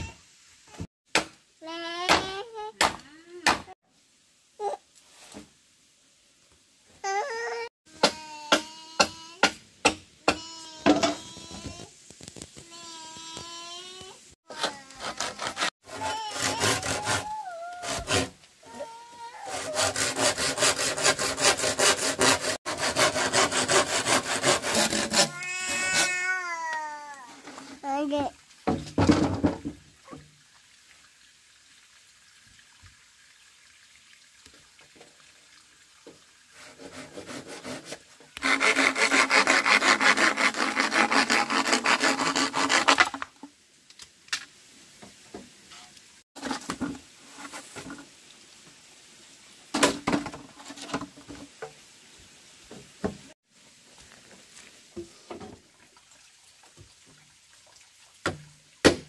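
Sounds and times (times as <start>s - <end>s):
knocks of bamboo and wood: 0.8s - 1.4s, 2.0s - 3.7s, 8.0s - 12.7s, 28.6s - 30.3s, 49.7s - 51.8s, 58.2s - 59.0s
bamboo being hand-sawn: 7.1s - 28.0s, 36.5s - 43.5s, 45.7s - 48.1s.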